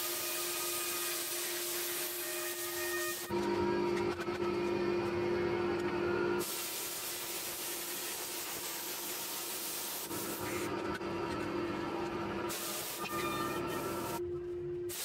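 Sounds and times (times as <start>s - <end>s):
plasma cutter hissing: 1.0s - 3.2s, 6.4s - 10.6s, 12.5s - 14.2s.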